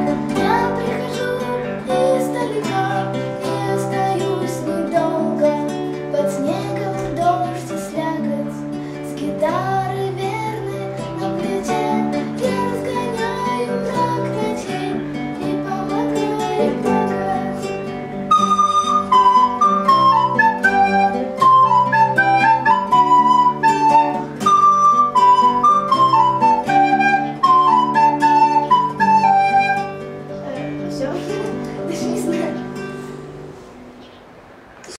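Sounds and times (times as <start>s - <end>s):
recorder melody: 0.0s - 3.2s, 11.2s - 31.4s
classical guitar chords: 0.0s - 34.9s.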